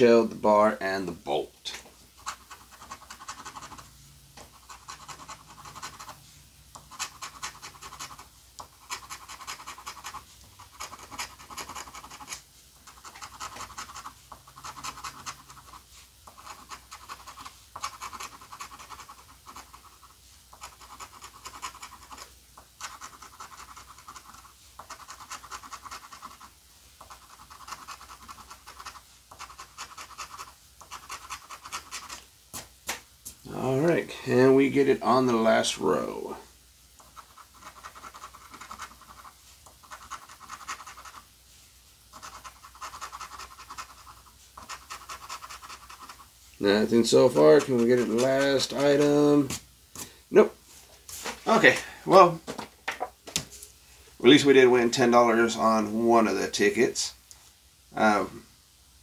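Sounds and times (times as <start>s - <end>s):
coin scratching lottery ticket: 2.2s - 6.2s, 6.8s - 32.2s, 37.0s - 41.3s, 42.1s - 49.5s.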